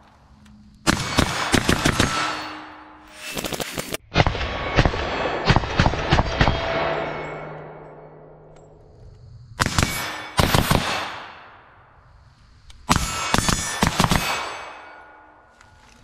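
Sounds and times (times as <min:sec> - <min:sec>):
steel targets ringing: 0:00.9 - 0:03.3, 0:04.6 - 0:08.5, 0:09.8 - 0:11.6, 0:12.9 - 0:15.6.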